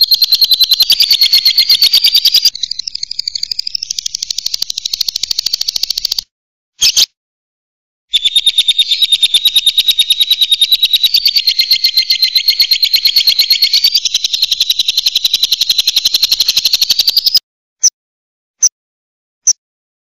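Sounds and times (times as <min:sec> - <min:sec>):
bird chattering trill: 0:00.0 - 0:06.2, 0:08.1 - 0:17.4.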